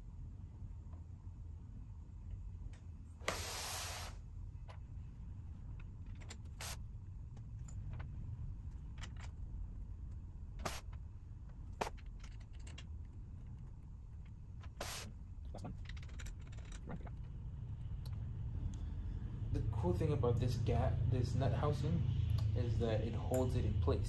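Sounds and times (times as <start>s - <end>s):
steady low hum: 0.0s - 24.0s
small screws and metal clicking: 5.7s - 18.2s.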